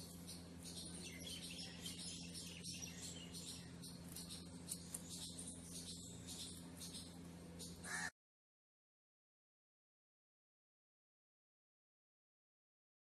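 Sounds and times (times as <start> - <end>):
steady low hum: 0.0 - 8.1.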